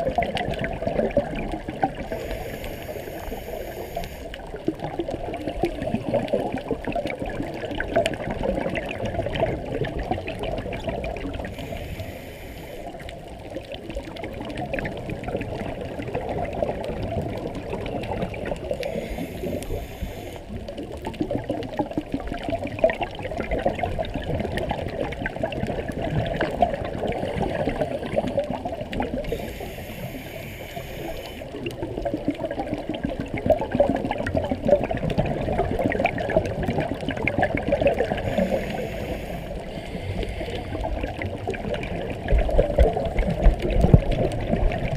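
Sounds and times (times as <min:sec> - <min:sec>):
underwater exhale bubbling: 0:00.0 - 0:44.9
regulator inhalation hiss: 0:02.1 - 0:04.4, 0:11.5 - 0:13.0, 0:18.8 - 0:20.6, 0:29.3 - 0:31.5, 0:38.2 - 0:40.8.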